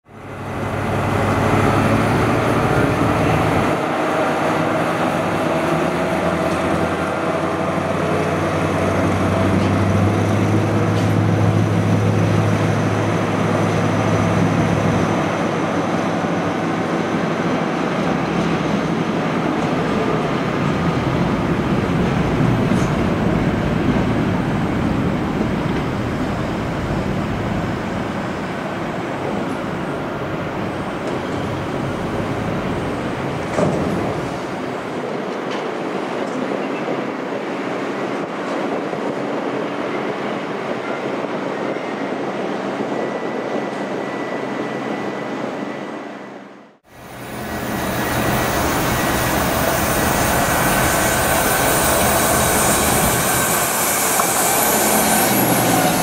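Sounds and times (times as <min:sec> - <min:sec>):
train rumbling: 0:00.0 - 0:56.0.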